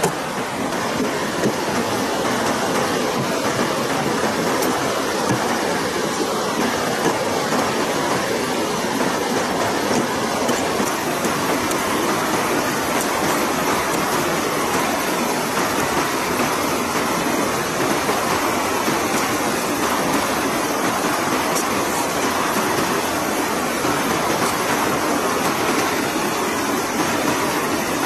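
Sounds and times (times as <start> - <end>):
river rushing over rapids: 0.0 - 28.0.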